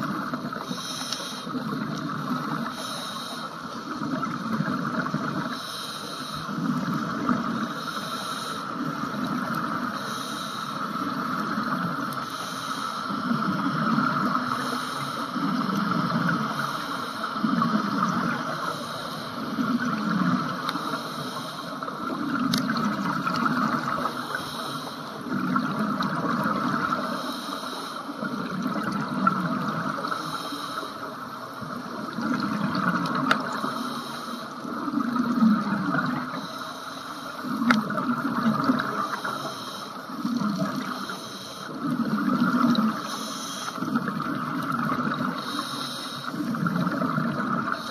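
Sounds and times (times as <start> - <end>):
scuba regulator hiss: 0.6 - 1.6, 2.7 - 3.6, 5.5 - 6.6, 7.7 - 8.8, 10.0 - 10.9, 12.2 - 13.3, 14.5 - 15.4, 18.6 - 19.5, 20.8 - 21.8, 24.1 - 25.2, 33.6 - 34.6, 39.0 - 40.0, 43.0 - 43.8, 45.4 - 46.4.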